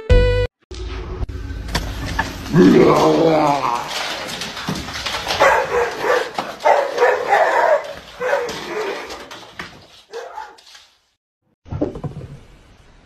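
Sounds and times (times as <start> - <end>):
dog barking: 5.4 - 9.1, 10.1 - 10.6.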